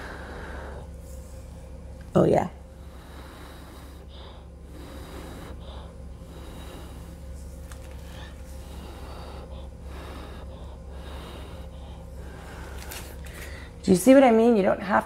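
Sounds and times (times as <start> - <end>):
steady low hum: 0.0 - 15.0
person inhaling: 2.8 - 13.8.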